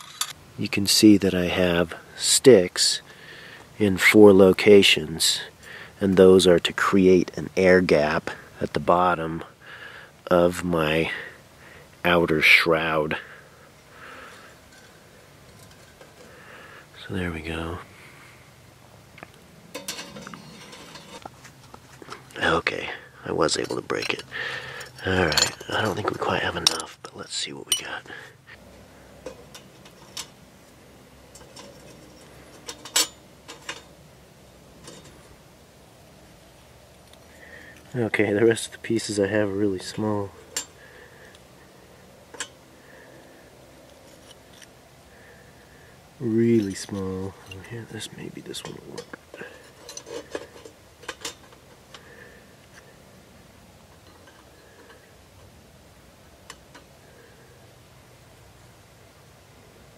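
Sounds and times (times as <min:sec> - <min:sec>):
sheet metal clinking and scraping: 0:00.0 - 0:00.4, 0:14.6 - 0:16.4, 0:19.7 - 0:22.3, 0:23.4 - 0:28.2, 0:29.2 - 0:30.4, 0:31.2 - 0:34.0, 0:34.8 - 0:35.3, 0:39.8 - 0:40.8, 0:46.4 - 0:52.9, 0:53.9 - 0:55.5
sheet metal clinks and taps: 0:19.7 - 0:21.2, 0:31.3 - 0:33.9.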